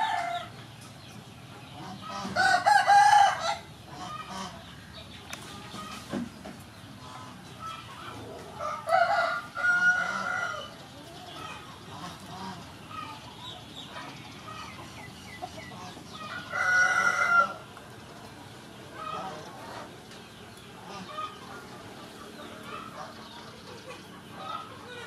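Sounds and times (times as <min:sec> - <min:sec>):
rooster crowing: 0:00.0 - 0:00.5, 0:02.3 - 0:03.7, 0:08.6 - 0:10.8, 0:16.3 - 0:17.6.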